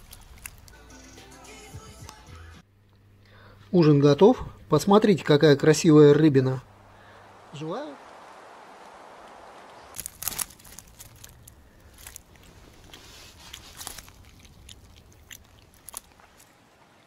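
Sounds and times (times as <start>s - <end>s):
mesh net crackling and rustling: 0.0s - 0.8s, 7.5s - 16.8s
net and fish clicks and scrapes: 0.0s - 0.9s, 10.0s - 16.6s.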